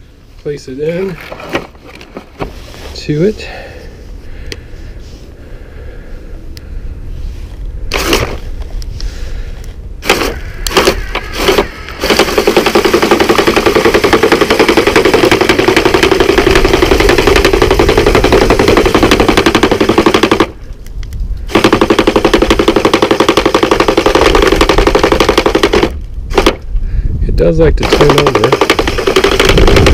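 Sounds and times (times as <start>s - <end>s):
gutter-cleaning robot auger rattling: 10.0s - 20.5s, 27.8s - 29.9s.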